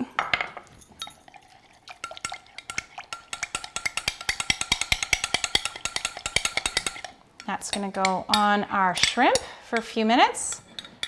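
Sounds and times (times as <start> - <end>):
spoon clinking against glass: 0.6 - 7.8.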